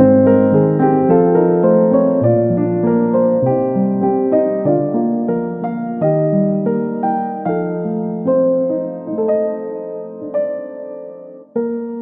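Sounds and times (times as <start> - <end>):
slow piano music: 0.0 - 12.0.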